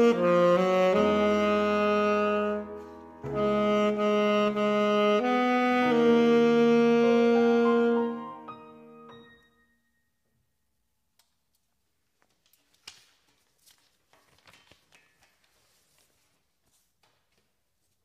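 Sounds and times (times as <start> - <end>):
saxophone and piano note: 0.0 - 10.1
sheet music paper rustling: 11.5 - 18.0.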